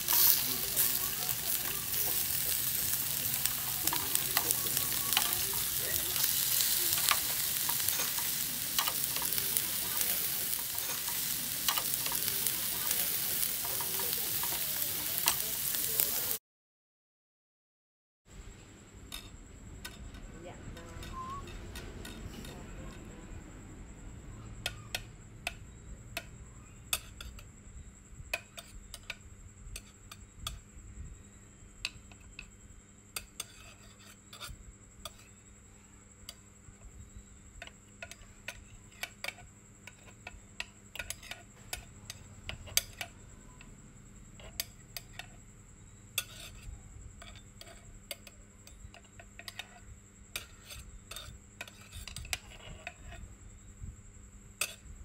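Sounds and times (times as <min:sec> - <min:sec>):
cutlery clinking against dishes: 0:00.1 - 0:16.3, 0:46.2 - 0:49.8
faint steady high tone: 0:20.9 - 0:21.6.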